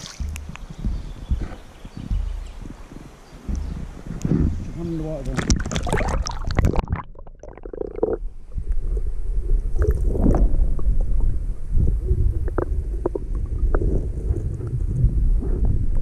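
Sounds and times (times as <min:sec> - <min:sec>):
underwater clicks: 0:00.0 - 0:08.8
water splashing: 0:00.0 - 0:14.6
underwater rumble of creek water: 0:00.0 - 0:16.0.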